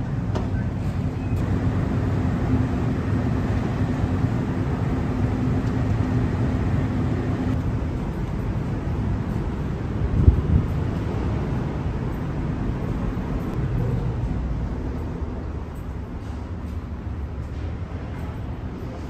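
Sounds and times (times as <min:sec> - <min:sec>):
ship engines humming: 0:00.0 - 0:19.0.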